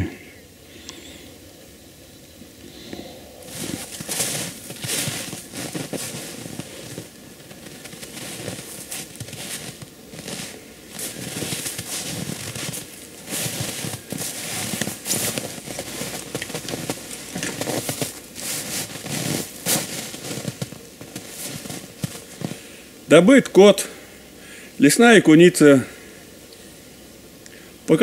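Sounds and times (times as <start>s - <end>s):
boots crunching in snow: 2.9s - 22.7s
jacket rustling: 3.0s - 22.7s.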